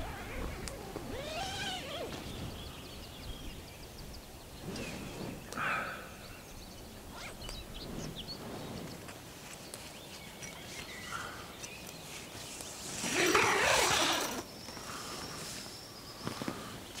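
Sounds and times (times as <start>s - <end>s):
tent zipper pulled open: 0.0s - 2.9s, 4.6s - 5.5s, 7.1s - 9.0s, 12.7s - 14.5s.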